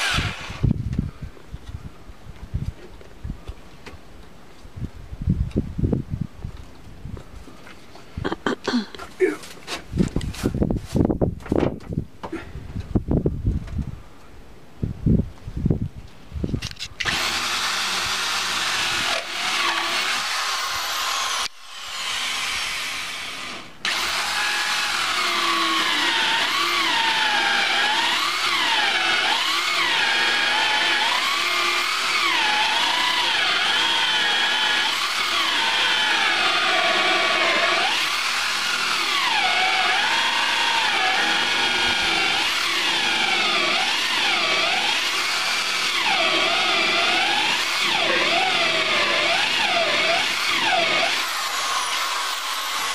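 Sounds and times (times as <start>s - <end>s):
electric drill cutting wood: 0.0s - 0.7s, 17.0s - 52.9s.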